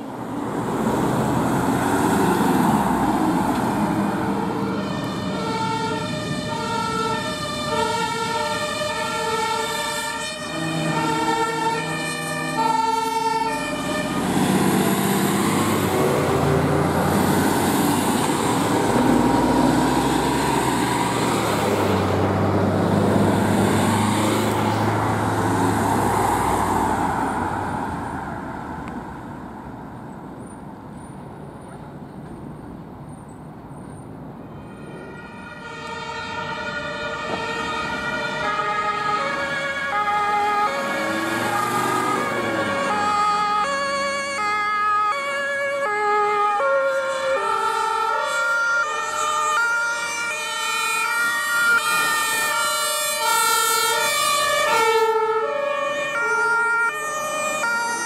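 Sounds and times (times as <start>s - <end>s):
two-tone emergency siren: 1.7s - 28.4s, 34.5s - 58.0s
heavy vehicle driving past: 13.5s - 29.2s.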